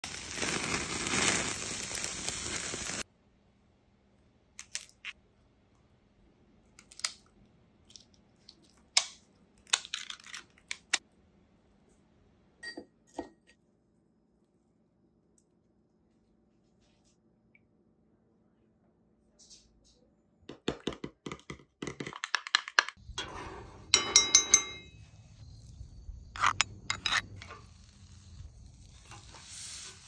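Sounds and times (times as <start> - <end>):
food sizzling on charcoal grill: 0.0 - 3.1, 25.3 - 30.0.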